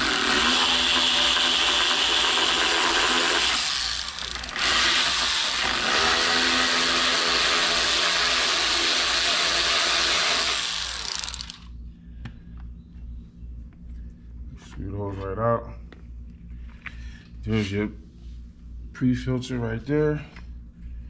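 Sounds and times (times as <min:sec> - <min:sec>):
air ratchet running: 0:00.0 - 0:11.7.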